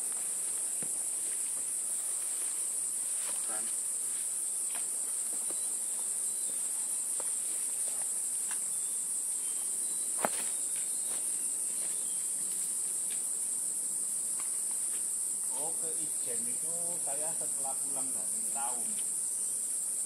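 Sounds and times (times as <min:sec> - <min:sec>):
footsteps on dirt trail: 0:00.0 - 0:08.6, 0:10.1 - 0:13.2
insects droning: 0:00.0 - 0:20.0.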